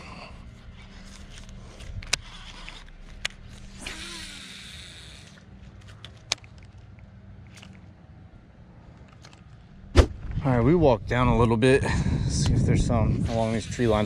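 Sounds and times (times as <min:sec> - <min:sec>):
low steady hum: 0:00.0 - 0:14.0
fishing reel clicks: 0:02.2 - 0:05.4
fishing line whirring off spool: 0:02.2 - 0:05.5.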